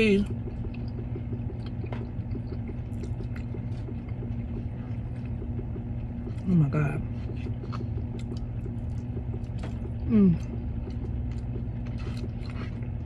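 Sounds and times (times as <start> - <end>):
chewing: 0.3 - 6.4, 7.1 - 13.0
woman humming mmm: 10.1 - 10.5.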